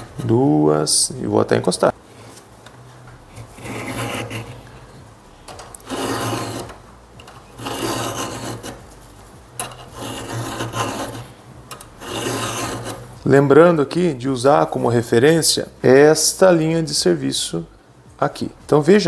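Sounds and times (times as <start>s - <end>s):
file rasping on saw chain: 3.5s - 4.6s, 5.8s - 6.8s, 7.6s - 8.8s, 9.6s - 11.3s, 12.0s - 13.2s.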